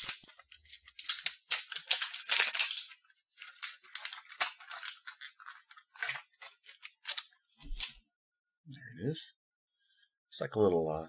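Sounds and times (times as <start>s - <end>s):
plastic wrapper crinkling: 0.0s - 8.0s.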